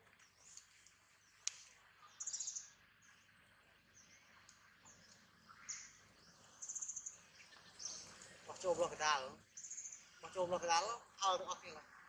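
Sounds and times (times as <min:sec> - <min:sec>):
high bird chirps: 0:02.0 - 0:02.8, 0:09.5 - 0:10.4.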